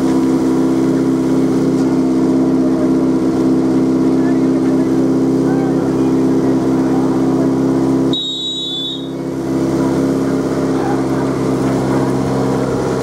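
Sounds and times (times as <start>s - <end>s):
engine running steadily: 0.0s - 13.0s
high steady tone: 8.0s - 9.4s.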